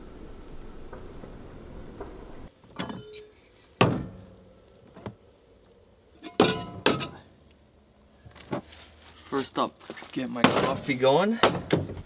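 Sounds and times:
cooking gear clunking and clattering: 0:06.2 - 0:07.2.

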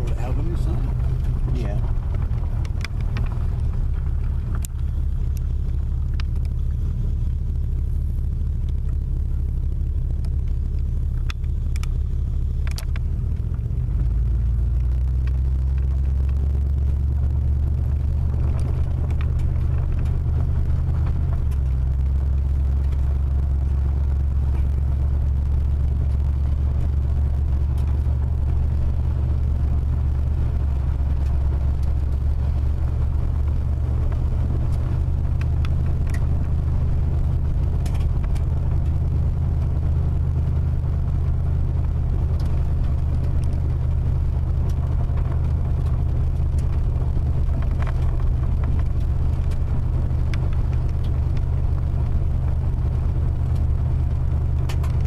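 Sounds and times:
car rumbling on gravel road: 0:00.0 - 0:55.0.

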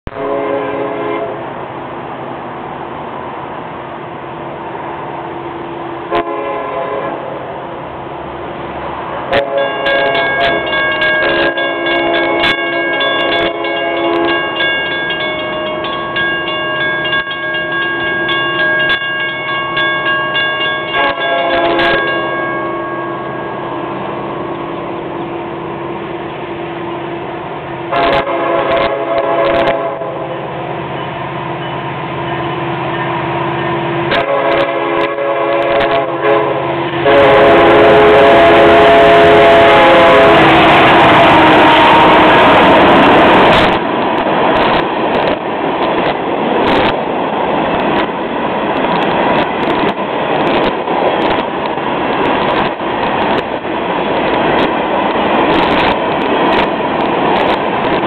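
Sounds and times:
locomotive air horn: 0:00.1 - 0:01.5, 0:06.1 - 0:07.4, 0:09.3 - 0:14.5, 0:20.9 - 0:22.2, 0:27.9 - 0:30.4, 0:34.1 - 0:42.6.

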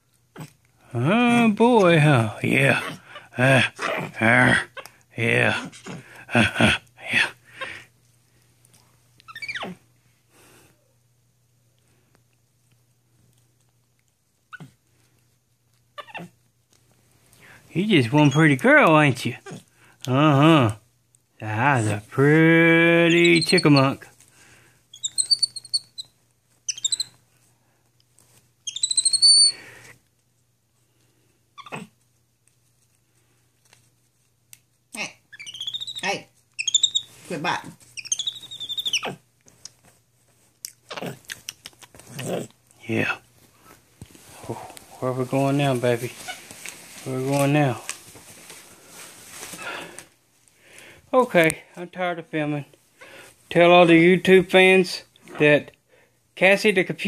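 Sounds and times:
faint low hum: 0:00.0 - 0:57.0
monkey squeal sliding down: 0:09.3 - 0:09.8, 0:24.9 - 0:26.1, 0:26.7 - 0:27.1, 0:28.6 - 0:29.5, 0:35.3 - 0:37.1, 0:38.0 - 0:39.2
soft rustle: 0:24.0 - 0:28.6, 0:29.7 - 0:34.9, 0:36.2 - 0:38.5, 0:39.1 - 0:51.7.

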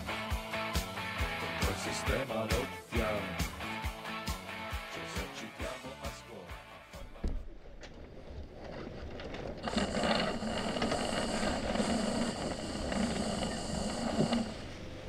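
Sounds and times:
water rushing around a boat: 0:07.1 - 0:15.0.

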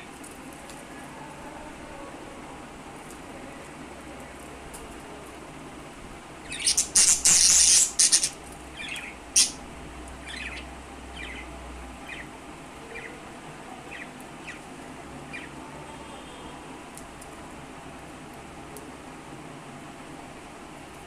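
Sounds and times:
budgerigars squawking: 0:06.5 - 0:08.3, 0:09.4 - 0:09.6.

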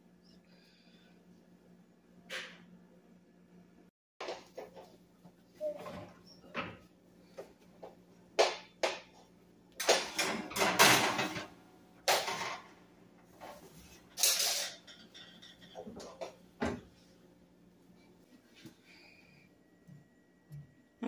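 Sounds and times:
baking sheet scraping on wire rack: 0:13.4 - 0:15.7.

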